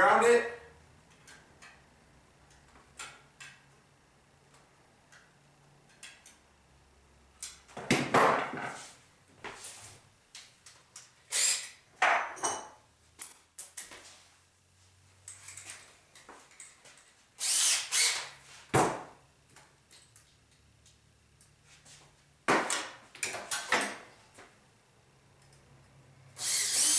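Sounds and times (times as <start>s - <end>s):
tools and parts clattering: 12.0s - 14.3s.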